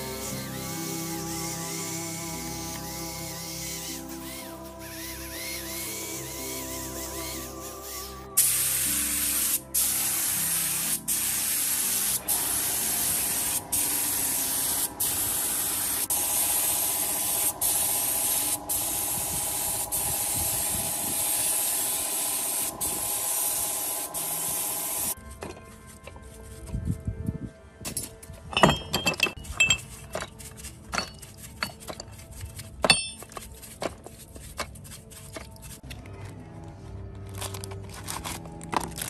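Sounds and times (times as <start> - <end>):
spray gun hissing: 0.0 - 25.2.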